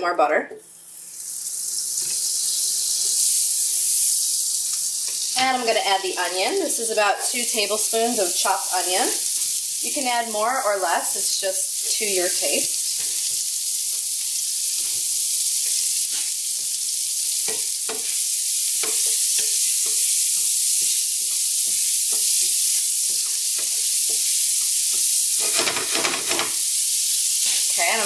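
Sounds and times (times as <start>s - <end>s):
onion sizzling in a frying pan: 0.7s - 28.0s
wooden spoon stirring: 18.8s - 26.5s.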